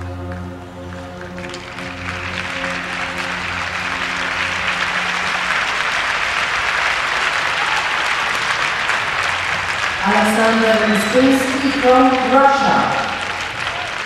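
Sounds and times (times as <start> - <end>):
program music: 0.0 - 7.6
audience applauding: 0.0 - 14.0.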